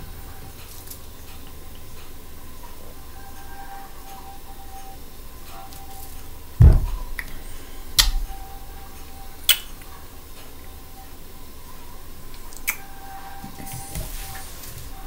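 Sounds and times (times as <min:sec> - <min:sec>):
faint steady hum: 0:00.0 - 0:15.0
bottle clicks: 0:09.5 - 0:09.8.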